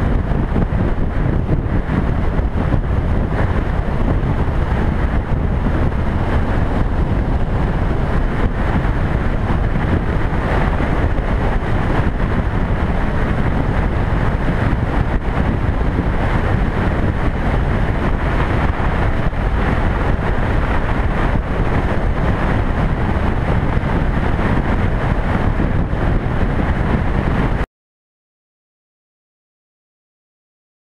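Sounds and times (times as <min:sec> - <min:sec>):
motorcycle running: 0:00.0 - 0:27.6
wind buffeting microphone: 0:00.0 - 0:27.6.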